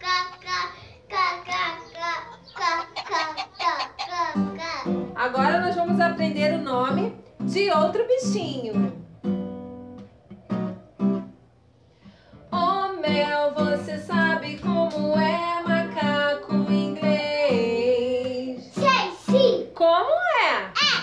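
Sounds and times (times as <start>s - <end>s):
acoustic guitar strummed: 4.2s - 11.4s, 12.5s - 19.6s
woman singing a children's song: 5.2s - 9.0s, 12.5s - 18.9s.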